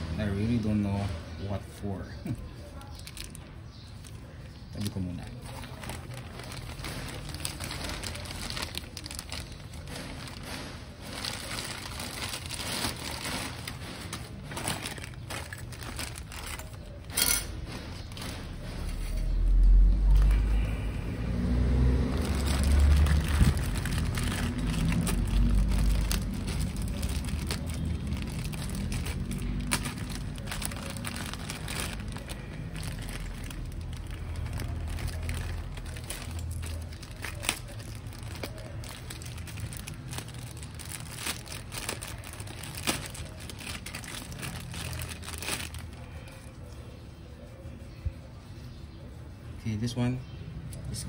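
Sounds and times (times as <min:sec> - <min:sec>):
plastic bag crinkling: 0:02.7 - 0:20.5, 0:21.5 - 0:46.7
low rumble: 0:18.4 - 0:38.2.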